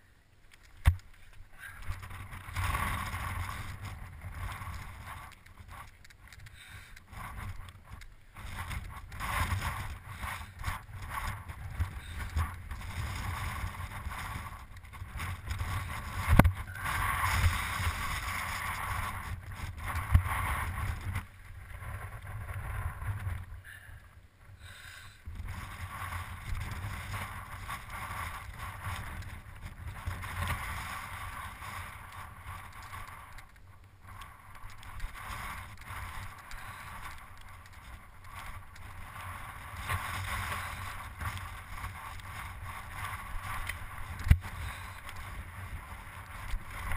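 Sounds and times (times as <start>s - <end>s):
bike tyres on gravel: 0.4s - 46.9s
wind buffeting microphone: 1.8s - 23.7s, 25.2s - 33.4s.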